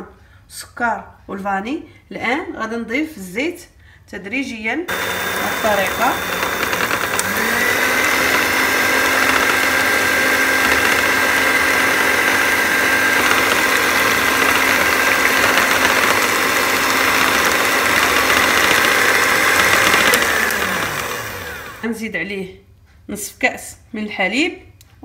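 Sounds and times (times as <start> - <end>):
stand mixer motor whining: 4.9 - 21.8.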